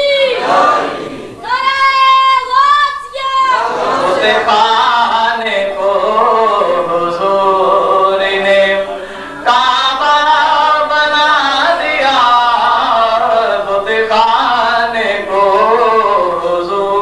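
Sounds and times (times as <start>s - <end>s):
man chanting devotional verse: 4.2s - 17.0s.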